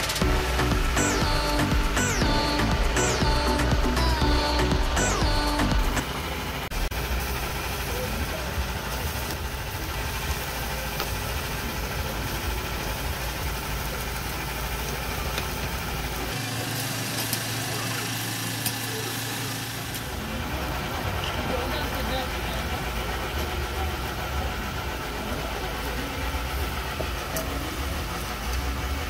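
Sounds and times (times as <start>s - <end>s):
low rumble: 0.0s - 7.9s
low steady hum: 0.0s - 18.0s
meat sizzling on a grill: 6.8s - 20.2s.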